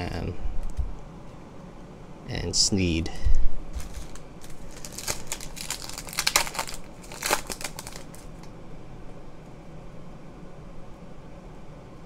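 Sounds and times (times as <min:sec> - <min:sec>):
foil wrapper crinkling and tearing: 0:03.7 - 0:08.5.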